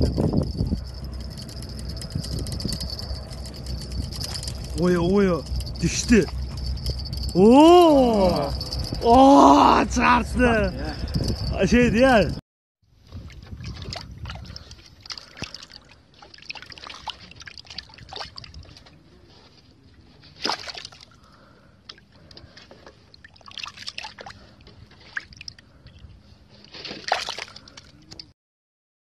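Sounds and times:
water splashing in a bucket: 0:13.1 - 0:18.8, 0:20.4 - 0:21.2, 0:23.1 - 0:25.6, 0:26.8 - 0:28.2.

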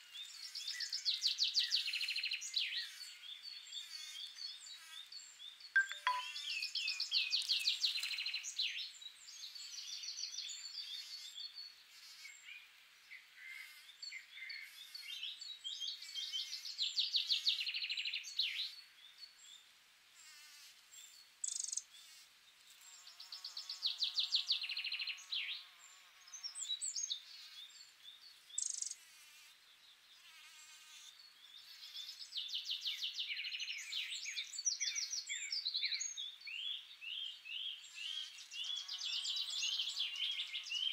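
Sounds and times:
songbird singing trills: 0:05.7 - 0:08.9, 0:23.1 - 0:29.0.

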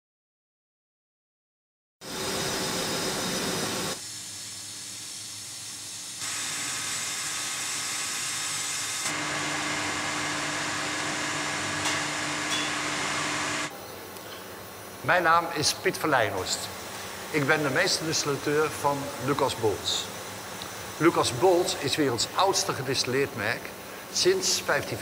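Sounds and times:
distillery equipment hissing and humming: 0:02.0 - 0:25.0.

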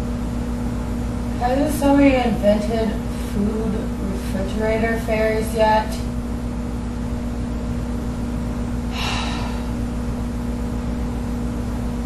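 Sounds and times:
low electrical hum: 0:00.0 - 0:12.0
woman sighing: 0:08.9 - 0:09.8.

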